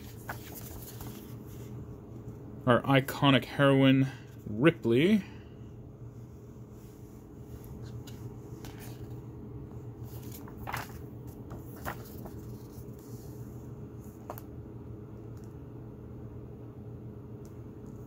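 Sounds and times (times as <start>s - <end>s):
paper pages turning: 0.0s - 1.8s, 7.6s - 9.2s, 10.0s - 13.4s
steady low hum: 0.0s - 18.0s.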